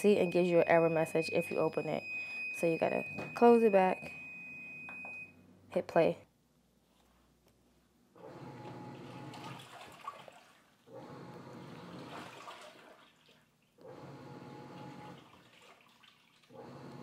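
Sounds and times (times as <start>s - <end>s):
washing machine agitating: 8.2s - 17.0s
clothes sloshing in water: 9.0s - 10.9s, 11.8s - 13.8s, 15.2s - 16.6s.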